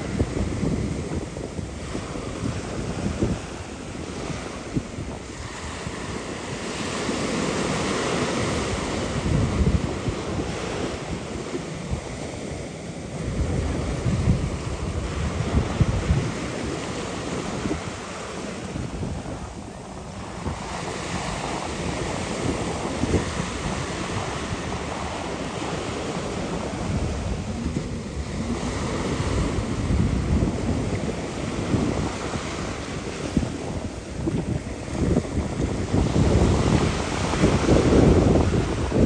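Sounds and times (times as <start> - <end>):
wind buffeting microphone: 0.0 - 39.0
rushing splashing water: 12.8 - 39.0.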